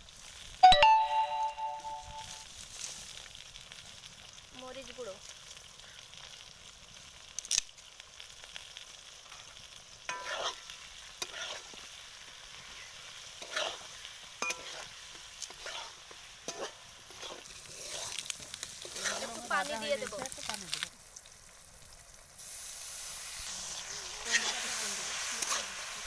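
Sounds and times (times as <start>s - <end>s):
beans sizzling in oil: 0.0s - 26.0s
metal spatula scraping pan: 10.1s - 11.8s, 13.3s - 19.5s, 24.2s - 24.8s.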